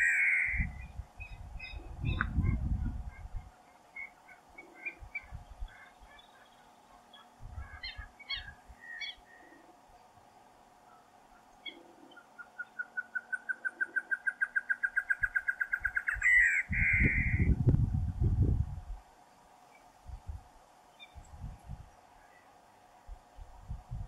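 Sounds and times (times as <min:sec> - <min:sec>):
bird hooting song: 0:00.0 - 0:09.8, 0:10.8 - 0:17.6.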